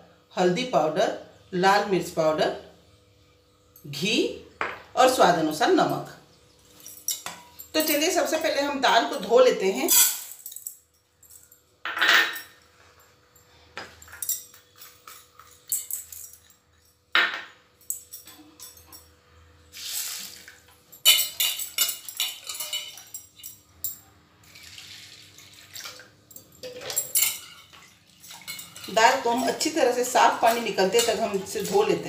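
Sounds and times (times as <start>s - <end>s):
water pouring into bowl: 24.4s - 27.0s.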